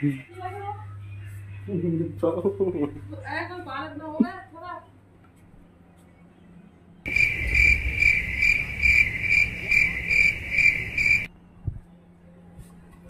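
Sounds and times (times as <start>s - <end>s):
loud high-pitched pulsing chirp: 7.1s - 11.3s
low rumble: 7.1s - 11.3s.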